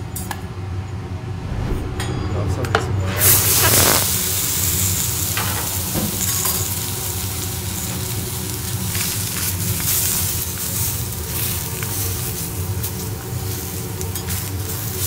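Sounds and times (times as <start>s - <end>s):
seafood sizzling on a griddle: 3.6s - 15.0s.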